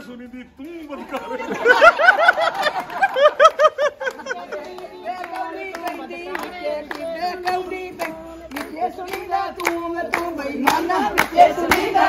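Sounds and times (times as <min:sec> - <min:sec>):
hands clapping in time: 0:02.3 - 0:12.0
women singing folk song: 0:04.2 - 0:12.0.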